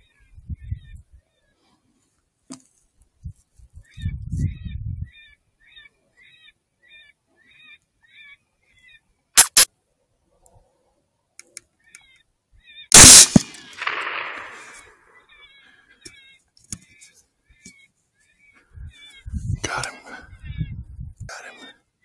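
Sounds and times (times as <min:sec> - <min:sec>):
sharp clicks: 0:09.4 - 0:09.7, 0:12.9 - 0:14.9
rifle shot: 0:12.9 - 0:15.0.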